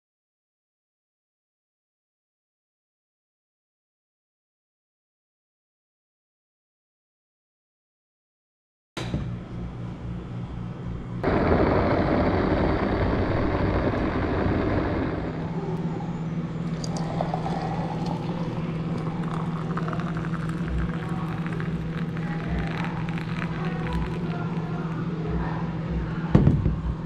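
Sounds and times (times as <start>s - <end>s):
electric kettle boiling: 11.2s - 15.8s, 16.6s - 25.1s
hot water pouring into glass: 16.6s - 25.0s.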